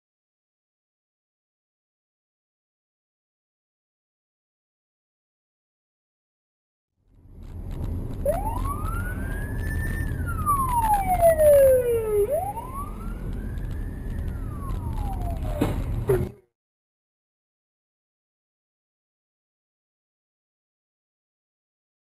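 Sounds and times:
car driving rumble: 7.1 - 16.5
emergency siren wailing: 8.2 - 16.2.

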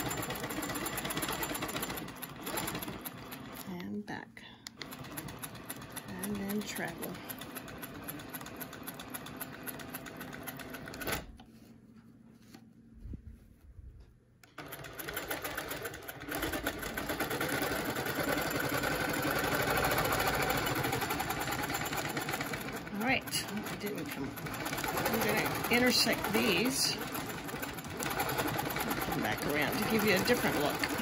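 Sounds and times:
quilting machine stitching: 0.0 - 3.7, 4.8 - 11.4, 14.6 - 31.0.

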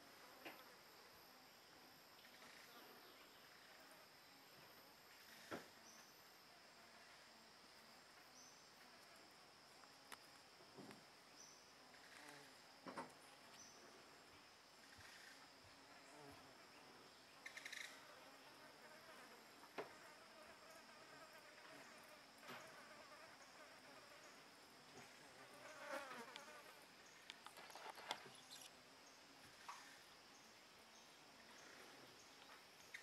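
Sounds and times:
soft rustles and clicks: 27.2 - 28.8.

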